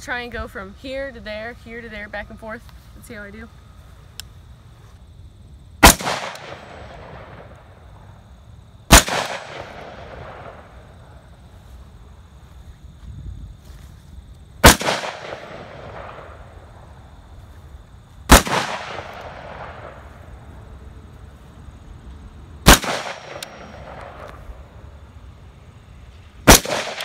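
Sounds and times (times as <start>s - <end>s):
rifle shots with echo: 5.8s - 7.8s, 8.9s - 11.2s, 14.6s - 16.5s, 18.3s - 20.2s, 22.6s - 24.4s, 26.4s - 27.0s.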